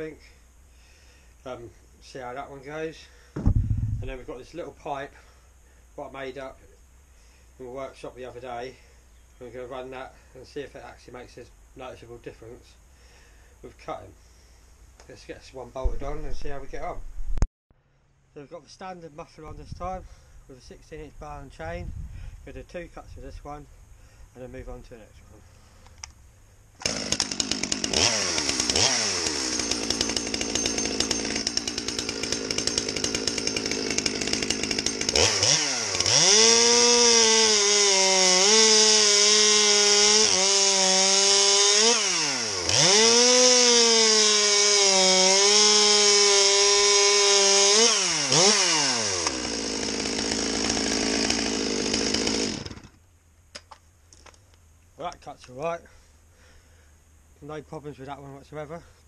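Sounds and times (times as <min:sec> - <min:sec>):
chainsaw cutting log: 0:03.3 - 0:04.6, 0:26.8 - 0:53.0
chainsaw engine revving and idling: 0:26.8 - 0:53.0.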